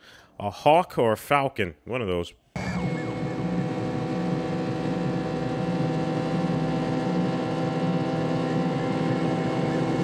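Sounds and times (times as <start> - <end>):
motorcycle engine running: 2.7 - 10.0.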